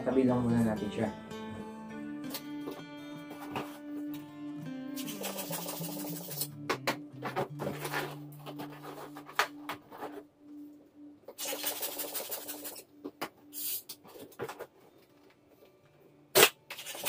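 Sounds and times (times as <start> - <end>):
hand pump airy hiss: 13.5 - 13.9.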